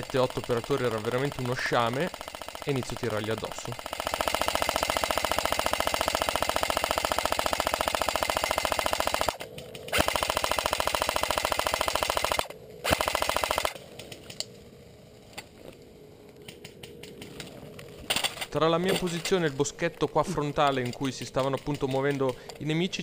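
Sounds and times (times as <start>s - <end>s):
airsoft gun firing full-auto: 0.0s - 13.8s.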